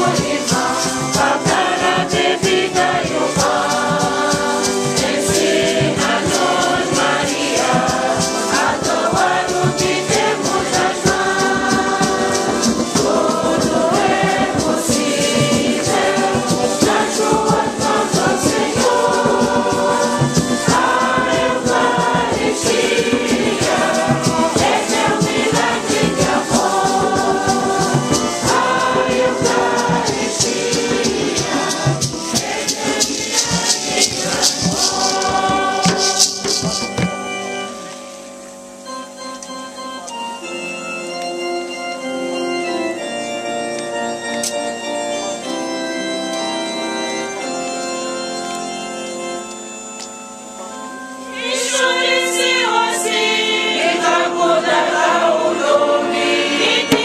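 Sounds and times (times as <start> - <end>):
congregation choir singing a hymn: 0.0 - 38.0, 50.6 - 57.0
hand drums: 0.0 - 38.0, 56.7 - 57.0.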